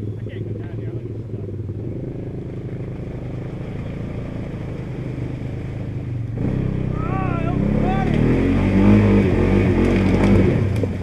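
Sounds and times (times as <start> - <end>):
atv engine idling: 0.0 - 8.2.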